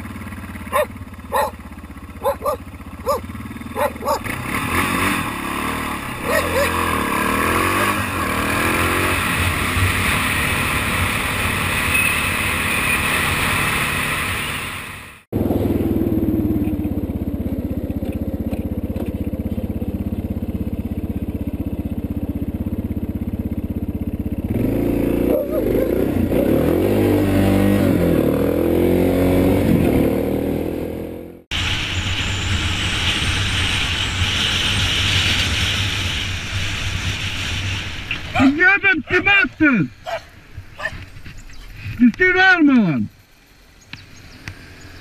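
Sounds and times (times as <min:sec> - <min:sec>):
motorcycle engine running: 0:00.0 - 0:42.0.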